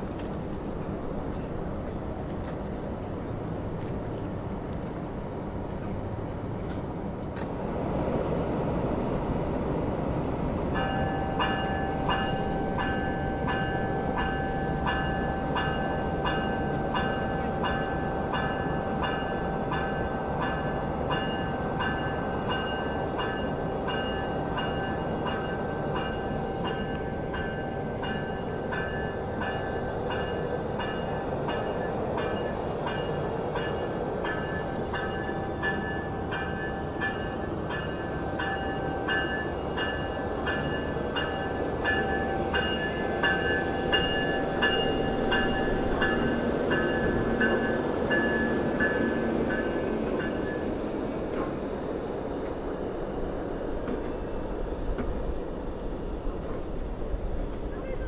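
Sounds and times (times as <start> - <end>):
electronic locomotive bell ringing: 10.7 - 51.0.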